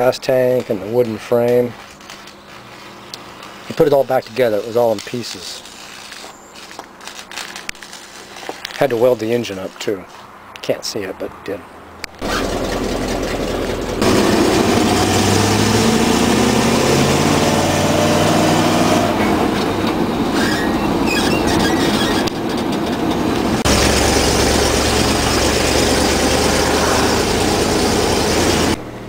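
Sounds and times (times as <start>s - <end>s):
pickup engine and road noise: 11.4s - 29.0s.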